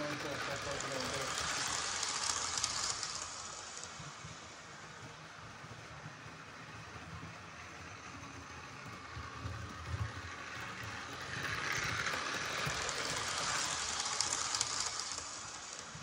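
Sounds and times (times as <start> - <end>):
model train running on track: 0.0 - 16.0.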